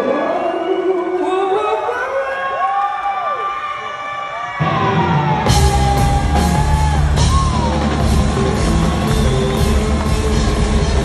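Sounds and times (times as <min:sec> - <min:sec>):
live rock band: 0:04.6 - 0:11.0
drum and cymbal hits: 0:05.4 - 0:11.0.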